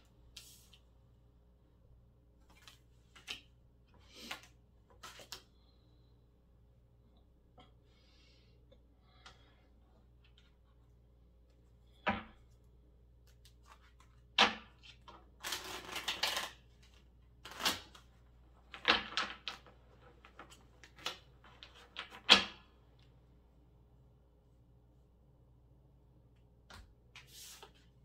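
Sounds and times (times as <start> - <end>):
cards shuffling: 2.4 - 3.5, 4.1 - 5.5, 14.8 - 18.1.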